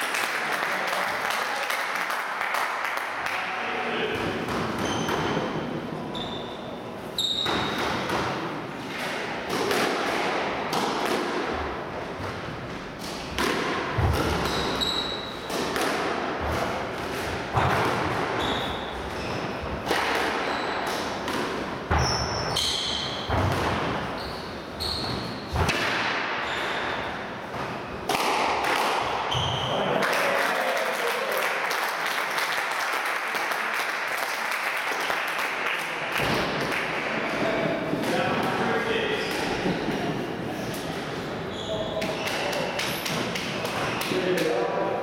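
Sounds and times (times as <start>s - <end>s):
shoes squeaking on wooden floor: 4.8s - 5.4s, 6.1s - 7.8s, 24.1s - 25.6s
squash ball smacking off rackets: 13.0s - 14.8s, 28.1s - 29.1s.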